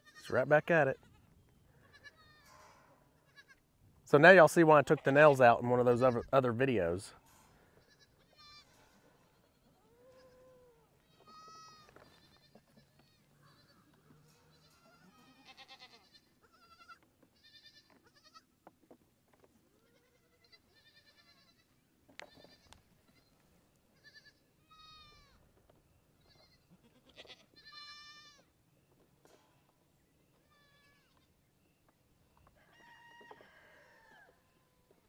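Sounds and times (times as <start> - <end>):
goat kids bleating: 0.0 - 3.7, 7.7 - 18.6, 19.7 - 25.4, 26.2 - 28.5, 30.3 - 31.4.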